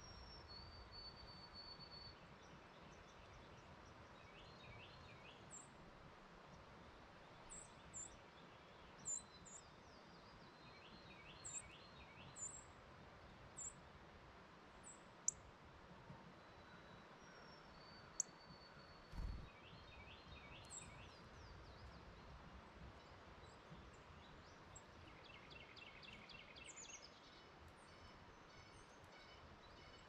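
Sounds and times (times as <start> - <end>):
faint background birdsong: 0.0 - 30.0.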